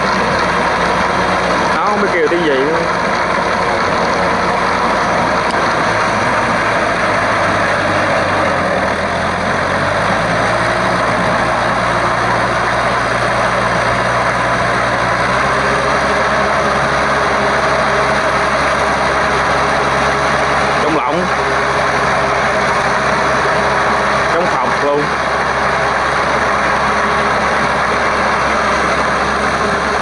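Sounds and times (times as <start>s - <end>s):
tiller churning mud: 0.0s - 30.0s
tractor diesel engine running: 0.0s - 30.0s.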